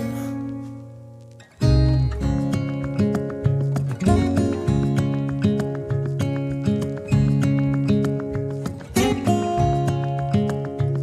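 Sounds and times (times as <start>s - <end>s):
acoustic guitar music: 0.0s - 11.0s.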